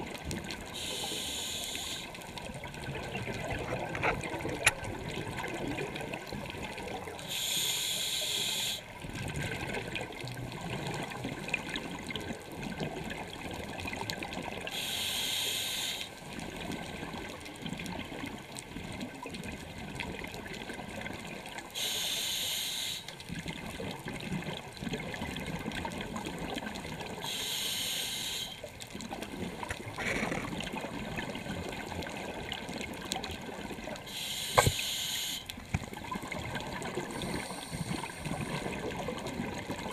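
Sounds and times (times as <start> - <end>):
low water rumble: 0.0 - 7.6, 8.8 - 21.8, 23.1 - 27.6, 28.5 - 39.9
bubbly hiss of exhaled air: 0.7 - 2.2, 7.2 - 8.9, 14.6 - 16.2, 29.9 - 31.2, 34.0 - 35.5, 36.1 - 39.9.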